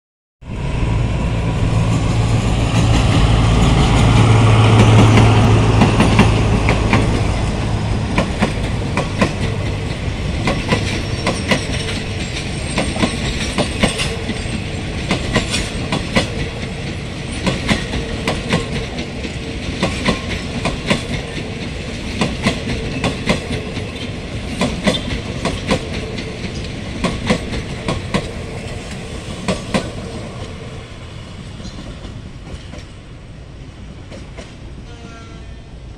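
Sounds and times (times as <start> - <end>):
locomotive engine hum: 0.5 - 19.6
train wheels clacking on rail joints: 1.9 - 30.7, 31.4 - 33.0, 34.0 - 35.3.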